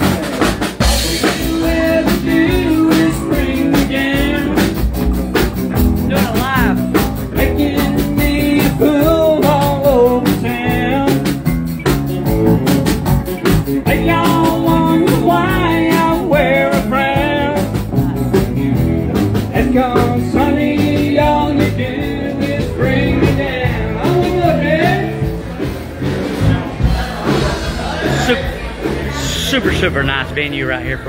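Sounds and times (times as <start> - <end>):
acoustic guitar: 0.0 - 31.0
drum kit beat: 0.0 - 31.0
electric bass: 0.0 - 31.0.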